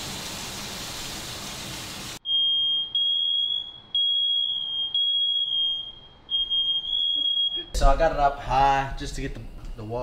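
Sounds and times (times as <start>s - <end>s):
smoke alarm beeping: 2.2s - 7.8s.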